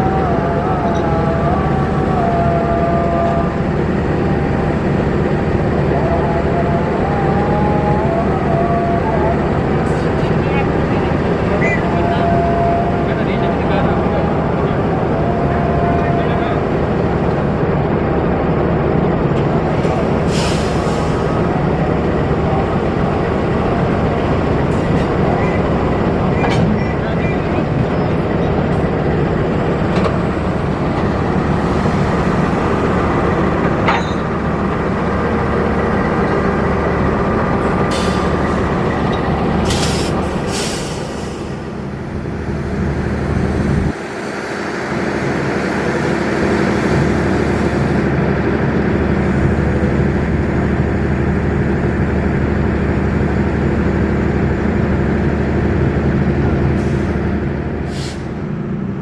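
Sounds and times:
locomotive engine hum: 0.0s - 59.0s
short air hisses: 20.3s - 21.2s, 39.6s - 41.6s, 57.9s - 58.4s.

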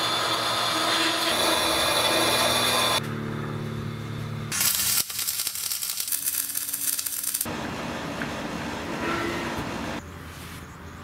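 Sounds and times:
steady low hum: 2.3s - 4.6s
welding arc crackling: 4.5s - 7.5s.

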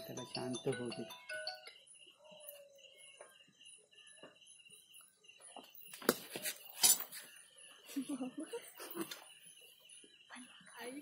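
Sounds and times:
faint high pulsing chirp: 0.0s - 11.0s.

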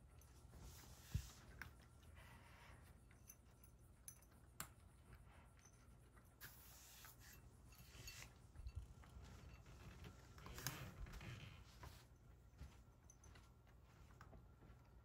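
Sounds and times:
cat eating from ceramic bowl: 1.4s - 6.5s
hand scraping bowl: 6.4s - 11.0s.

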